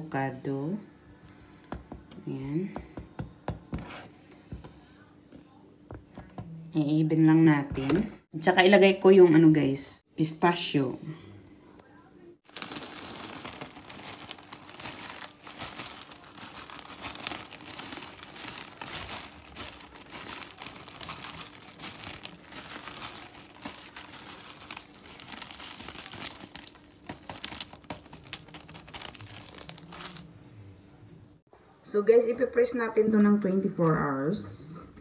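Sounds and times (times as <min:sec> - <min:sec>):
plastic bag crinkling: 0:12.4 - 0:30.3.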